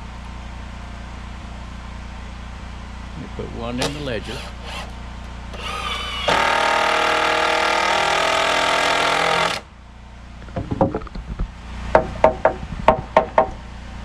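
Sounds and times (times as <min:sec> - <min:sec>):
cordless drill driving a screw: 0:03.8 - 0:09.6
sharp knocks: 0:10.4 - 0:13.6.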